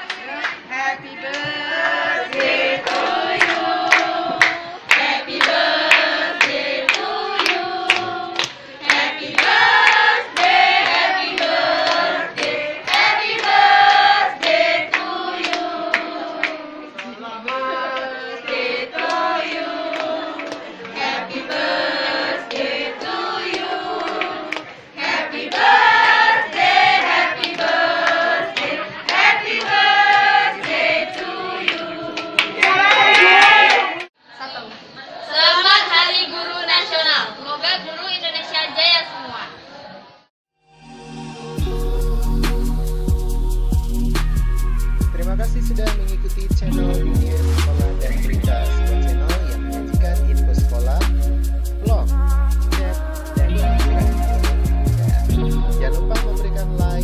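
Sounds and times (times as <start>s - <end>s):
group singing in unison: 0.6s - 34.1s, 41.3s - 45.0s, 51.9s - 55.9s
hand claps: 2.3s - 21.7s, 22.5s - 24.7s, 25.5s - 34.1s.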